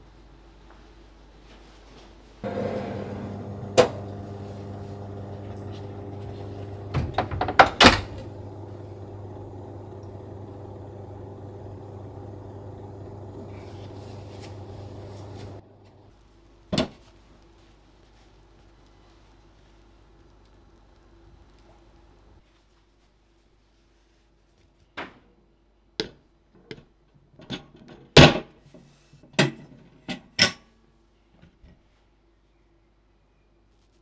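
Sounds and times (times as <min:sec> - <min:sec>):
oven fan humming: 0:02.4 - 0:16.2.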